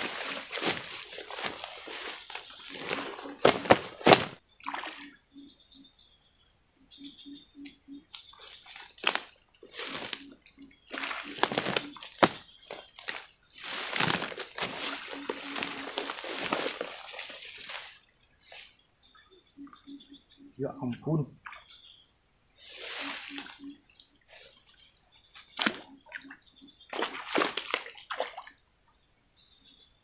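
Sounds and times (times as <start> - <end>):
outdoor rustling: 0.0 - 4.4, 8.1 - 18.9.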